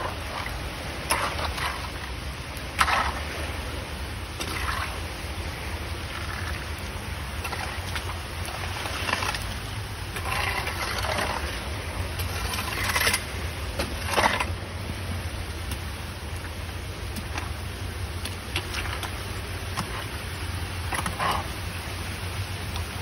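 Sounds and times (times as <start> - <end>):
rake scraping leaves off grate: 0.0 - 3.7, 4.4 - 5.0, 7.4 - 14.6, 20.8 - 21.7
water running into drain grate: 0.0 - 15.0, 15.6 - 23.0.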